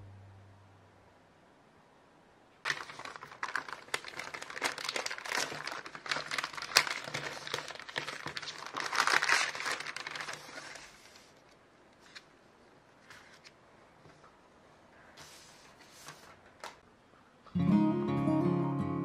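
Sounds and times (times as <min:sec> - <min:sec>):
plastic bag rustling and crinkling: 0:02.6 - 0:12.3
sticker packaging crinkling: 0:02.6 - 0:12.3.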